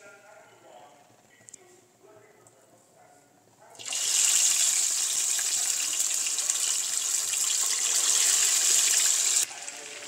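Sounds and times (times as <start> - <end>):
chicken frying in hot oil: 3.8 - 10.0.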